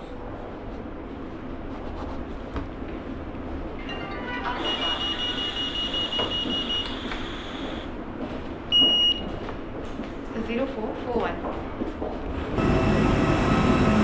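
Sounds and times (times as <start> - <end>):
steady high electronic tone: 3.8 - 7.7
breathalyser short beeps: 4.6 - 7.5.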